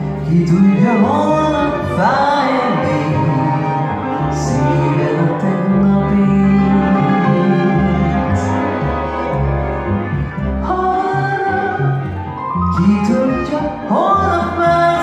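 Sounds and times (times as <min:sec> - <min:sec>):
violins cimbalom and double bass: 0:00.0 - 0:15.0
woman singing: 0:00.2 - 0:03.8, 0:10.6 - 0:15.0.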